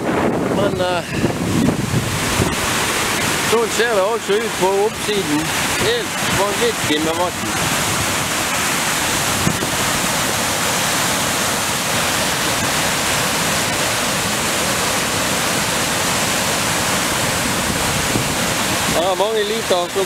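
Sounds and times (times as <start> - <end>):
river rushing over rapids: 0.0 - 20.0.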